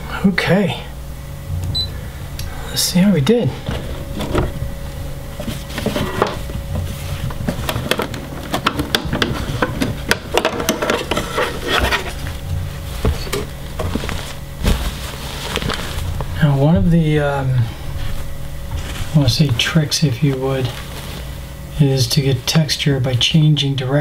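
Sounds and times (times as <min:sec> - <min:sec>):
faint steady hum: 0:00.0 - 0:24.0
fabric rustling: 0:11.1 - 0:21.5.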